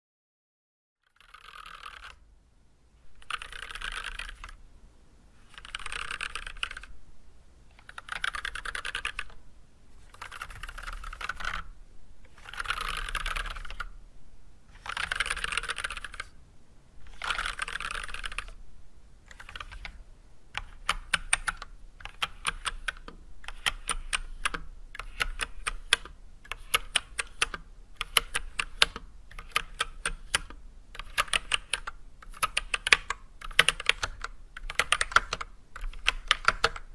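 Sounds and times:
mechanical keyboard typing: 1.1 - 2.2, 3.2 - 4.6, 5.4 - 6.9, 7.8 - 9.4, 10.0 - 11.7, 12.3 - 13.9, 14.7 - 16.4, 17.1 - 18.6, 19.3 - 20.0, 20.6 - 36.9.

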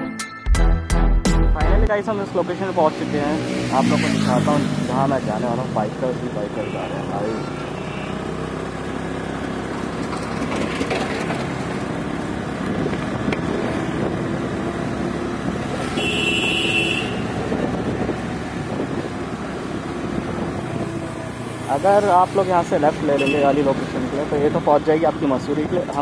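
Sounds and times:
road noise: 1.7 - 26.0
motor scooter engine: 3.1 - 22.2.

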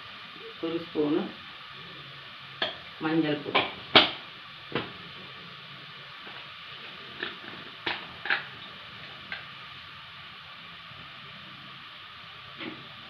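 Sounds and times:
oil sizzling in a pot: 0.0 - 13.0
sharp pops and crackles: 2.6 - 2.9, 3.5 - 5.0, 7.1 - 9.5.

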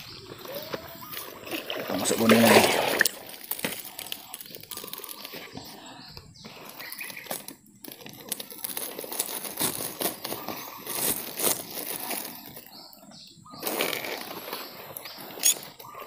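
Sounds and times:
plastic sack rustling: 0.0 - 12.9, 13.6 - 16.0
small clicks and scrapes: 3.2 - 12.7, 13.6 - 16.0.

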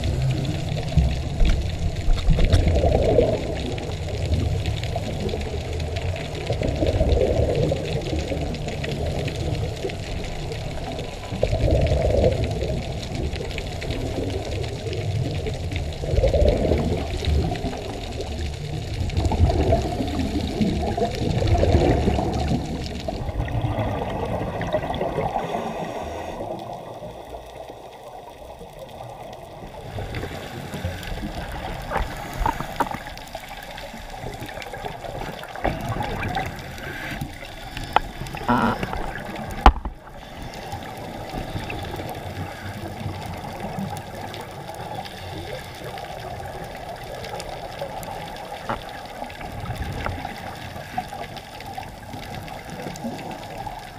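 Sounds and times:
underwater rush of water: 0.0 - 53.9.

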